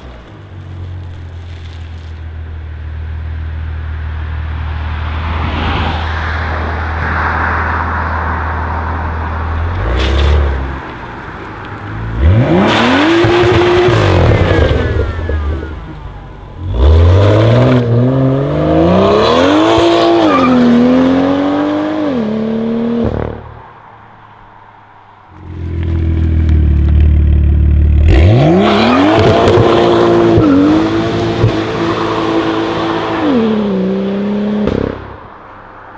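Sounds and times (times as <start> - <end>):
car engine revving: 12.1 - 23.6, 25.4 - 35.2.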